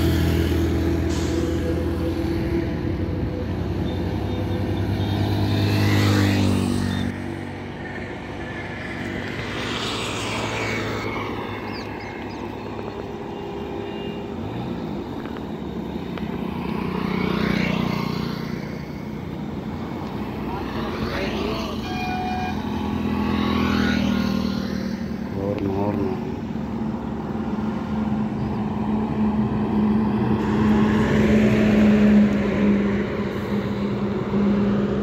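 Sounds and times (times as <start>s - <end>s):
heavy engine deep drone: 0.0s - 5.1s
highway traffic passing: 0.0s - 35.0s
vehicle rushing past: 3.6s - 13.2s, 22.6s - 35.0s
motorcycle passing: 4.2s - 7.8s, 15.7s - 35.0s.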